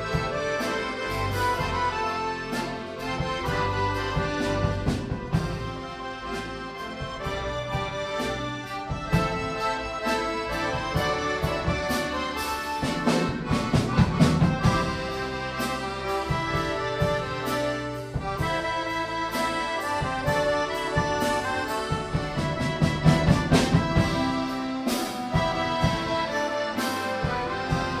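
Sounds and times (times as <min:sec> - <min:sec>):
accordion orchestra playing: 0:00.0 - 0:28.0
drum and cymbal hits: 0:07.0 - 0:28.0.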